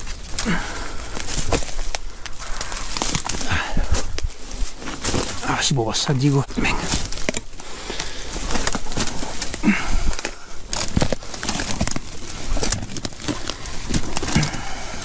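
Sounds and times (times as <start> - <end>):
brush crackling and rustling: 0.0 - 15.0.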